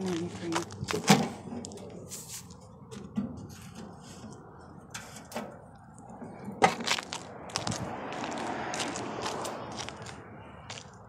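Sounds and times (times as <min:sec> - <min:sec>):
sandal footsteps on concrete: 0:06.6 - 0:11.0.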